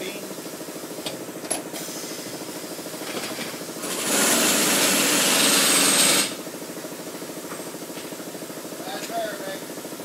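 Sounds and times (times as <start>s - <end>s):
pressurised gas hissing: 1.7s - 2.9s.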